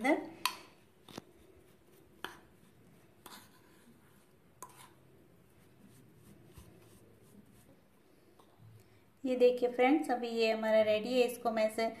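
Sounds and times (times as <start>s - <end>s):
spoon scraping crumbs in bowl: 1.1s - 5.1s.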